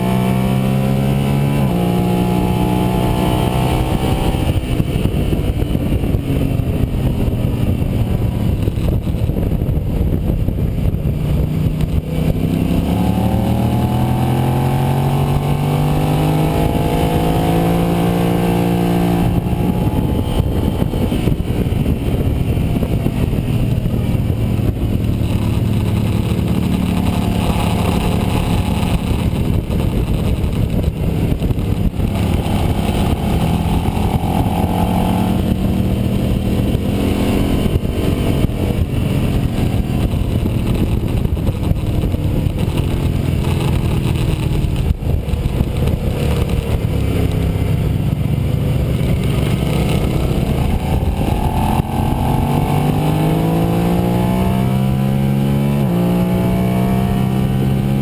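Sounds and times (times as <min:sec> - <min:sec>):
motorcycle engine running hard: 0:00.0 - 0:58.0
wind rush on microphone: 0:00.0 - 0:58.0.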